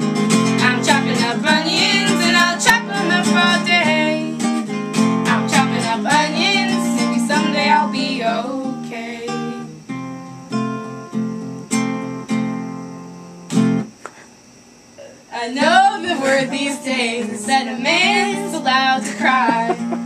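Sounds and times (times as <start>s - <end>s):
strummed acoustic guitar: 0.0s - 13.9s, 15.4s - 20.0s
woman singing: 0.5s - 4.5s, 5.2s - 9.8s, 15.3s - 19.9s.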